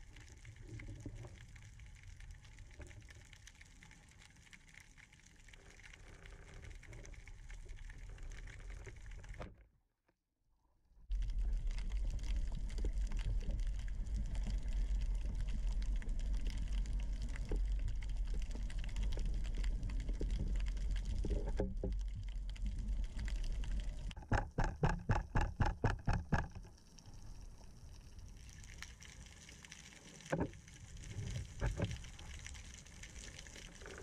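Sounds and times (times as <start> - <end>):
water sloshing and gurgling: 11.0 - 34.0.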